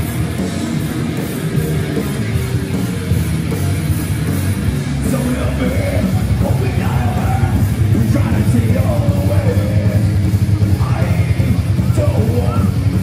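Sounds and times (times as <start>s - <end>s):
heavy metal band playing: 0.0s - 13.0s
person singing or shouting: 10.7s - 13.0s.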